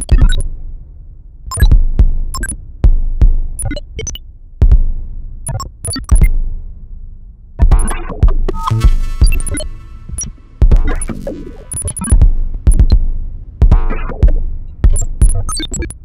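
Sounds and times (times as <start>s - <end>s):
glitchy clicks: 1.5s - 1.8s, 2.4s - 2.6s, 3.6s - 4.2s, 5.5s - 6.3s, 7.7s - 16.0s
deep thumps: 1.7s - 3.6s, 4.6s - 5.1s, 7.6s - 15.7s
electronic synthesizer music: 8.5s - 15.7s.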